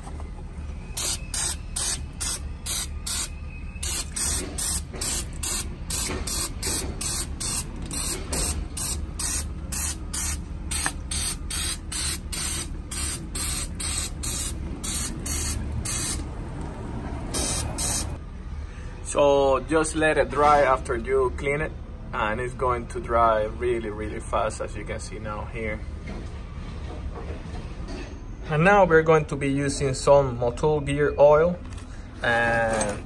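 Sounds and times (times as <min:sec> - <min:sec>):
aerosol spray hissing bursts: 0:01.0 - 0:16.2, 0:17.3 - 0:18.2.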